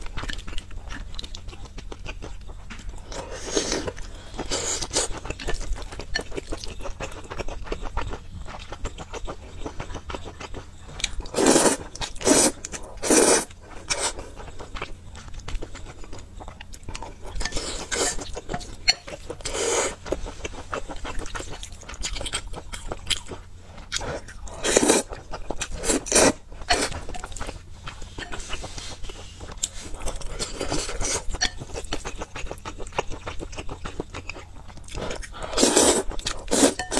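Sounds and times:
noodle slurping: 11.3s - 14.2s, 35.4s - 36.9s.

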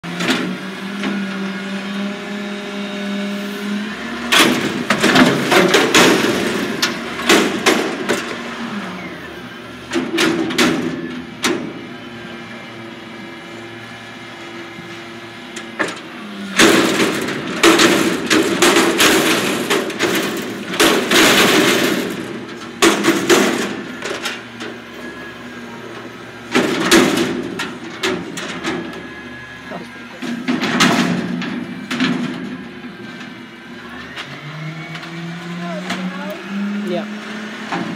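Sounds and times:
truck engine running: 0.0s - 37.9s
clattering and banging: 4.2s - 8.6s, 9.9s - 11.8s, 15.6s - 25.3s, 25.9s - 36.3s, 37.6s - 37.9s.

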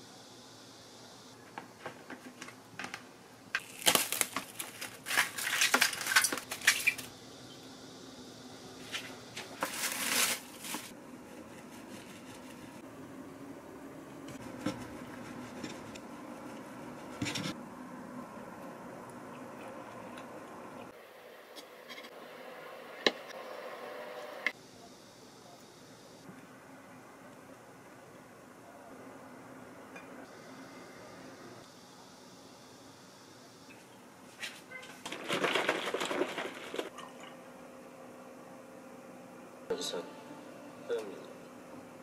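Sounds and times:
cling wrap crinkling: 3.6s - 7.1s, 9.4s - 11.0s.

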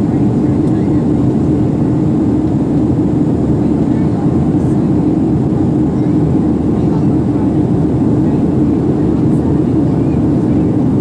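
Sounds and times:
aircraft cabin engine roar: 0.0s - 11.0s.

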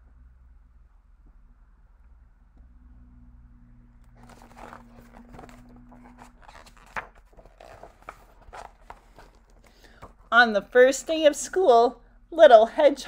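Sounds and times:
page snapping: 4.1s - 10.2s
paper rustling: 4.1s - 10.4s.

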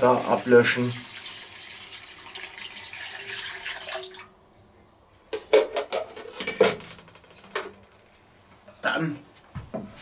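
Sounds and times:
liquid pouring into pot: 0.2s - 4.4s.

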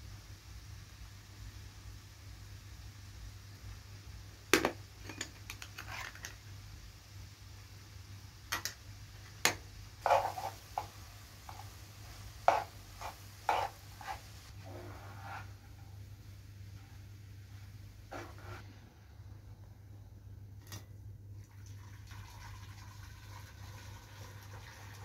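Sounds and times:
spoon and spatula tapping in a pan: 8.5s - 8.8s, 12.4s - 14.2s.

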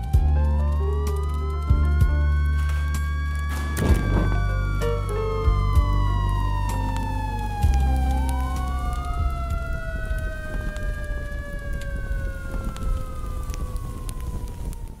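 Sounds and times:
siren wailing: 0.0s - 15.0s
low rumble: 1.7s - 10.2s.

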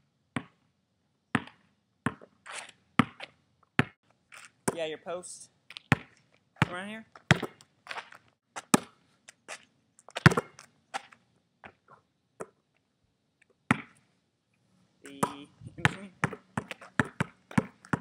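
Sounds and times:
basketball bouncing on court: 1.4s - 2.3s, 3.0s - 3.2s, 3.8s - 4.0s, 5.9s - 7.6s, 10.2s - 10.6s, 13.7s - 14.0s, 15.1s - 18.0s.

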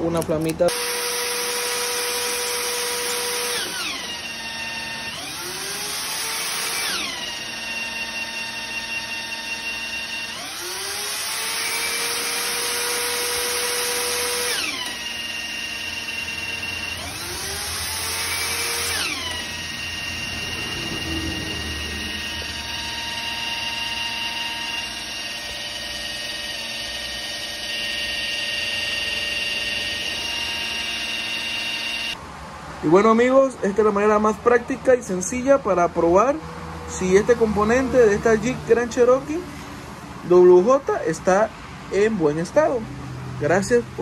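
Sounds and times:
motor whine: 0.0s - 32.2s.

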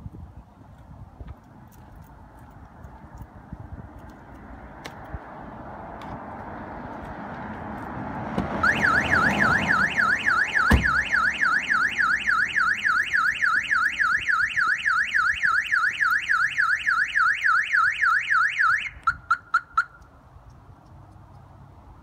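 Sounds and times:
car alarm siren warbling: 8.6s - 20.0s
car door shutting: 10.6s - 11.0s.

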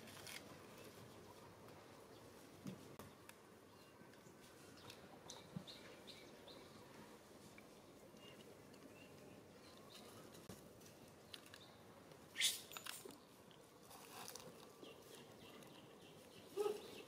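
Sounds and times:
monkey call: 16.5s - 17.0s.

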